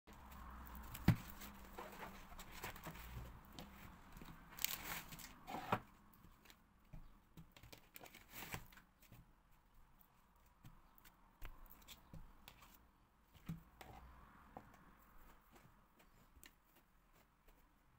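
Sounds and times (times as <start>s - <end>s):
crinkling rustle: 0.1s - 12.8s.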